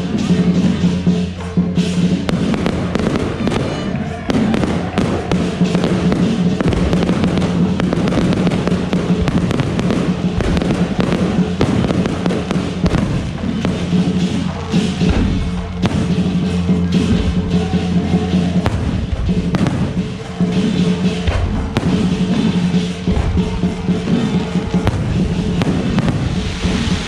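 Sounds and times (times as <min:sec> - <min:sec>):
fireworks bursting and crackling: 0:00.0 - 0:27.0
music playing: 0:00.0 - 0:27.0.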